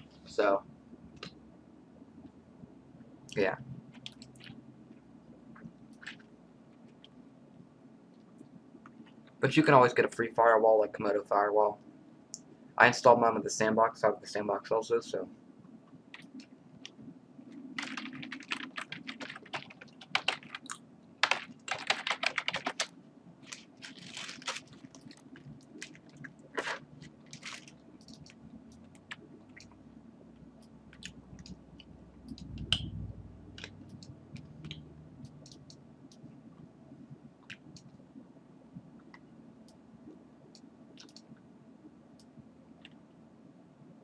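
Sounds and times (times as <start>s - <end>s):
typing on computer keyboard: 17.8s - 22.9s.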